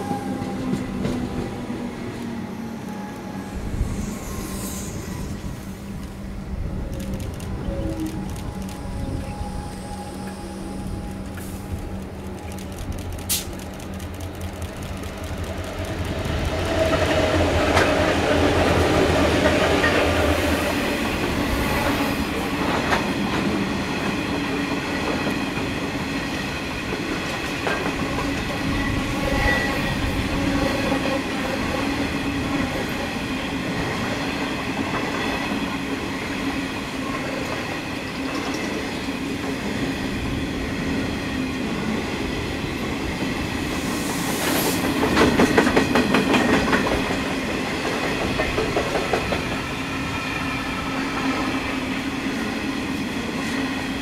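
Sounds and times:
diesel locomotive running: 4.9s - 23.6s.

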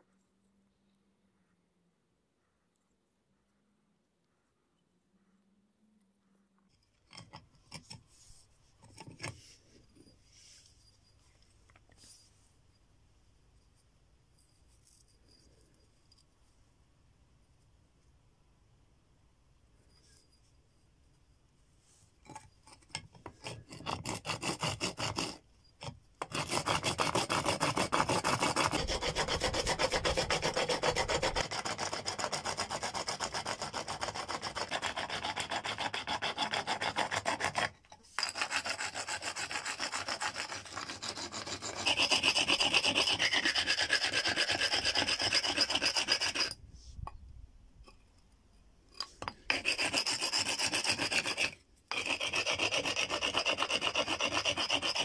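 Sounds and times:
stone rasping on bone: 6.7s - 10.1s, 22.2s - 47.2s, 48.9s - 55.0s.

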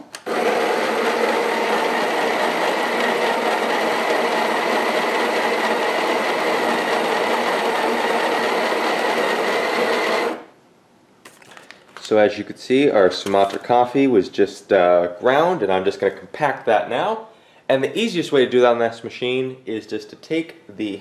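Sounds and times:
coffee grinder whirring: 0.2s - 10.5s.

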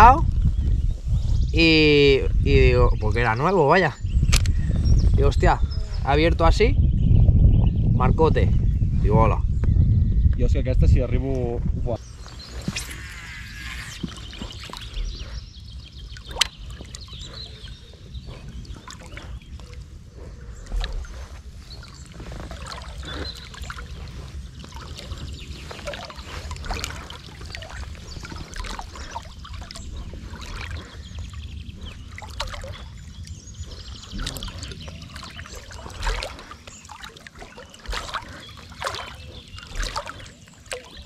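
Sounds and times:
water lapping and trickling: 12.0s - 41.0s.

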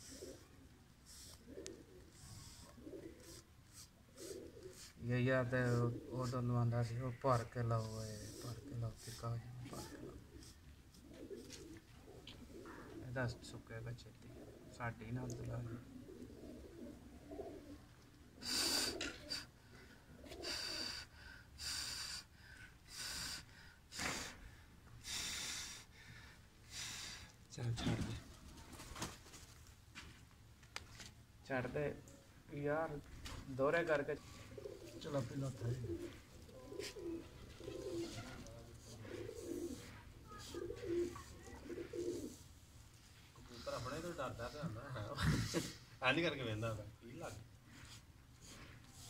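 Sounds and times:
pigeons cooing: 0.0s - 21.1s, 33.8s - 42.5s
person blowing short puffs: 22.9s - 25.9s.

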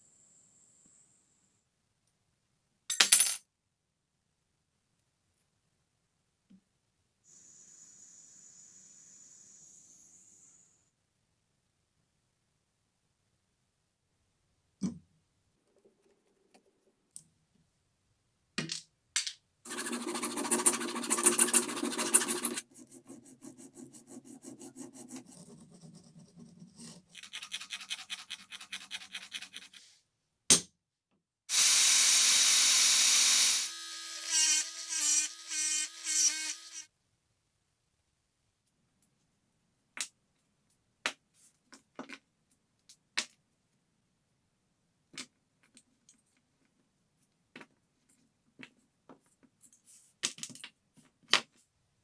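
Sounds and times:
hand file rasping on metal: 19.7s - 29.9s.

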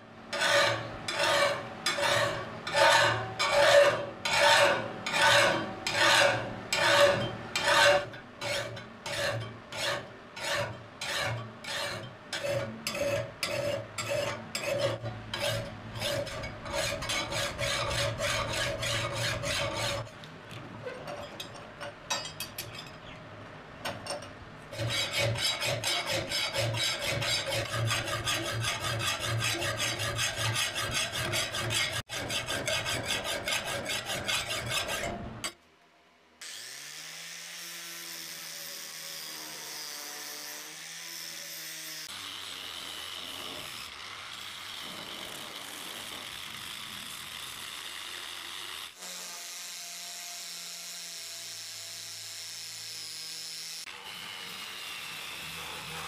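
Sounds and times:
file rasping on steel blade: 0.3s - 20.1s, 24.7s - 35.6s, 53.8s - 56.0s.

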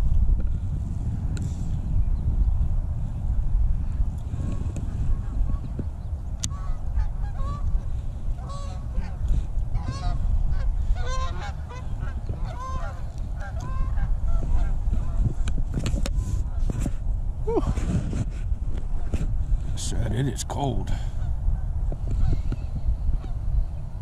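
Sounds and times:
geese honking: 6.5s - 15.2s.

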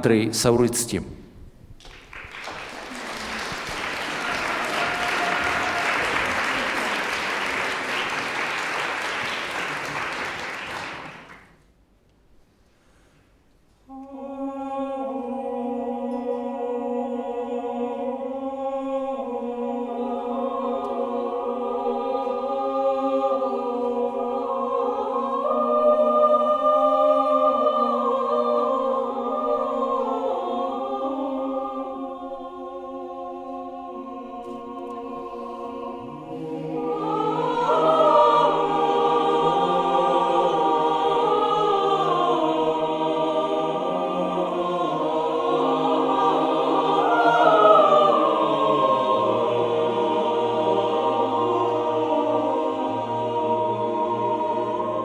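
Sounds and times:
audience applause: 1.8s - 11.6s
a cappella choir singing: 2.4s - 11.5s, 13.9s - 55.0s.

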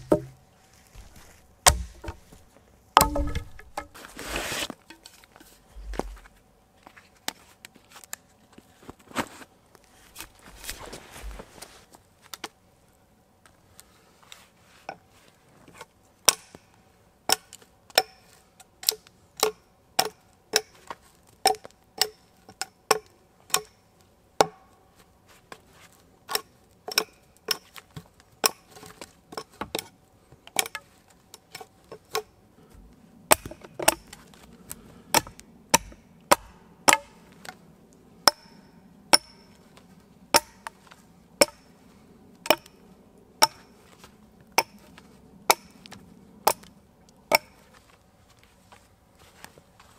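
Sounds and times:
axe chopping wood: 0.0s - 0.4s, 1.0s - 2.4s, 3.0s - 4.6s, 33.3s - 34.1s, 35.1s - 37.2s, 38.2s - 39.4s, 40.3s - 40.7s, 42.5s - 42.7s, 43.4s - 43.7s, 45.5s - 45.8s.

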